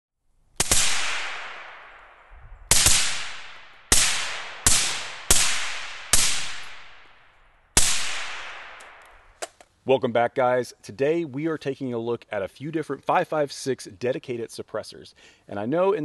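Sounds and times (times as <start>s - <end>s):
suppressed rifle shots: 0.6s - 9.5s.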